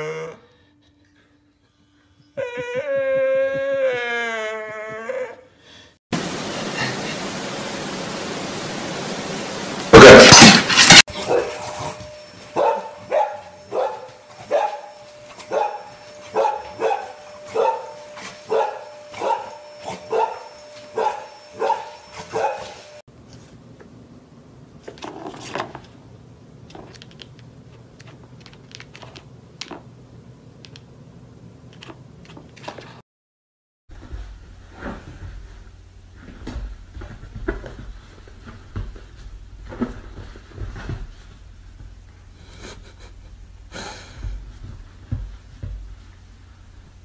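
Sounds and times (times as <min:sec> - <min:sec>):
loud burst of noise: 0:06.2 - 0:11.0
dog barking: 0:09.9 - 0:10.4, 0:11.2 - 0:11.6, 0:12.6 - 0:14.9, 0:15.5 - 0:22.7.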